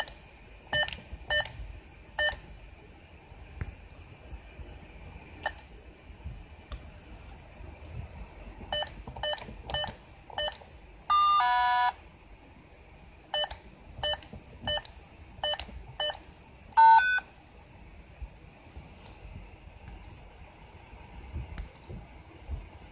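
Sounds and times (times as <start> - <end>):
keypad beeps: 0.7 - 1.5, 2.2 - 2.4, 8.7 - 12.0, 13.4 - 16.2, 16.8 - 17.2
two-pitch longer beep: 16.8 - 17.2.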